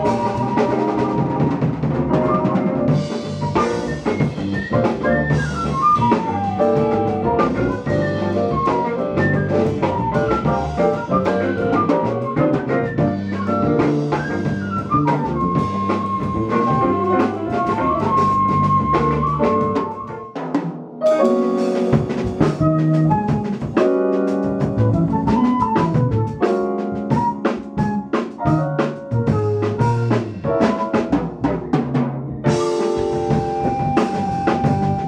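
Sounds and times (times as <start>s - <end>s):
electric bass: 0.0s - 20.0s, 21.7s - 27.3s, 28.4s - 35.0s
flute: 0.0s - 31.2s, 32.5s - 35.0s
drum kit: 0.0s - 35.0s
keyboards: 0.0s - 35.0s
electric guitar: 30.2s - 35.0s.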